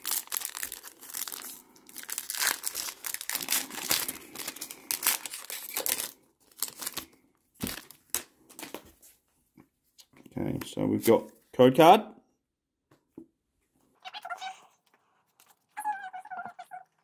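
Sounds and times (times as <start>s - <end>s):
foil wrapper crinkling: 0.0s - 8.7s.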